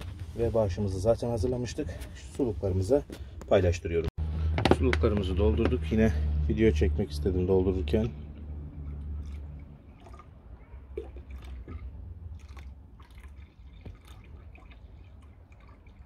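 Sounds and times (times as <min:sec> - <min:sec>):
water trickling from a jug: 0:08.4 - 0:16.0.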